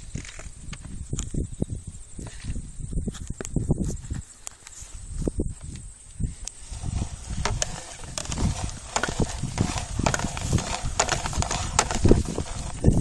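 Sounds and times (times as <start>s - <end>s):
hand-cranked reel clicking and knocking: 6.8s - 12.9s.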